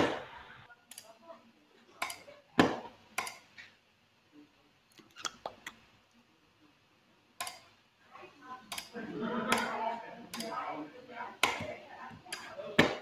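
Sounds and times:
mouse and keyboard clicks: 5.0 - 5.8.

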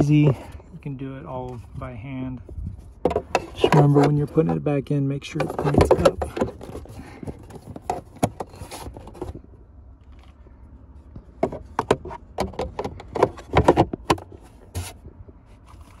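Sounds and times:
hard plastic clicks and knocks: 3.0 - 4.6, 5.4 - 9.4, 11.1 - 14.4.

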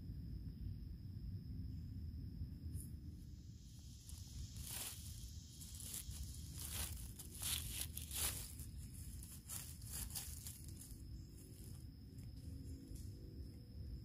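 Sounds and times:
crunching in forest floor litter: 3.4 - 13.5.

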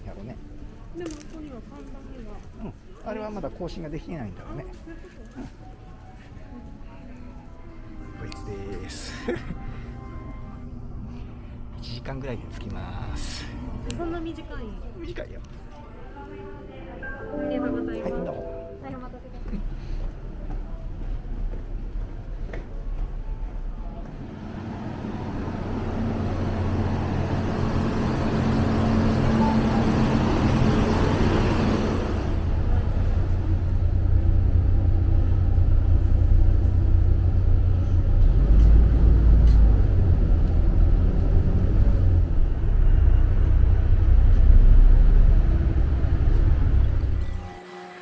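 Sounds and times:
bus engine and road rumble: 19.2 - 47.3.

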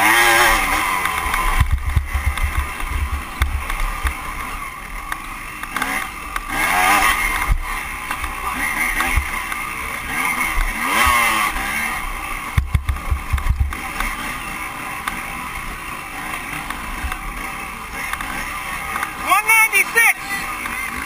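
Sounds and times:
dirt bike engine revving: 0.0 - 21.0
low thumps: 1.3 - 4.2, 12.5 - 13.8.

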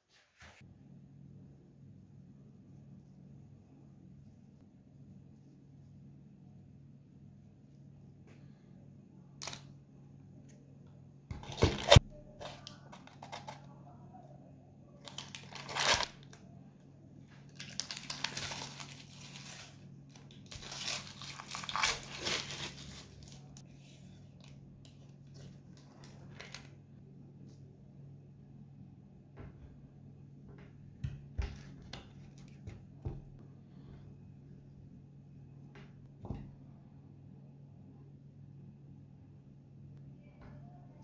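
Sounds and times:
parchment paper crinkling and tearing: 11.4 - 13.7, 15.0 - 16.4, 17.4 - 23.6, 24.3 - 26.8.

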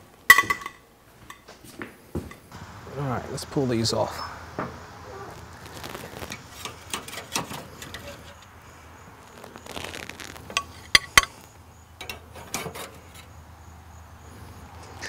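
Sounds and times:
metal spatula scraping grill grate: 5.2 - 13.4
spatula clinking on grill bars: 12.0 - 13.3.

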